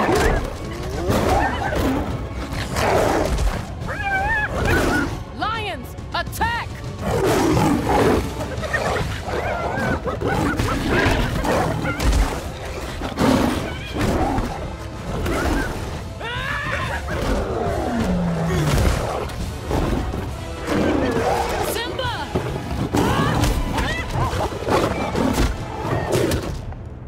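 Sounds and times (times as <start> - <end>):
hyenas yelping: 0.0 - 5.2, 7.1 - 19.9, 22.8 - 26.4
lions snarling: 0.0 - 5.2, 7.0 - 26.5
orchestral score: 0.0 - 27.0.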